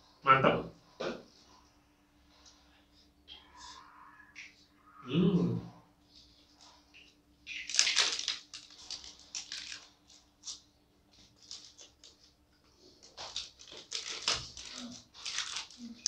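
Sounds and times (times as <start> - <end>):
crunching fried chicken: 7.5 - 10.6, 11.2 - 16.0.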